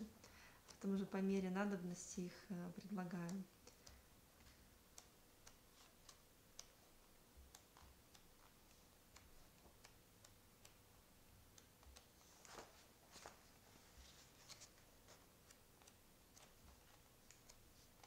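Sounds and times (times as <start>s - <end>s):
paper ticks: 0.1s - 18.0s
book pages turning: 11.9s - 18.0s.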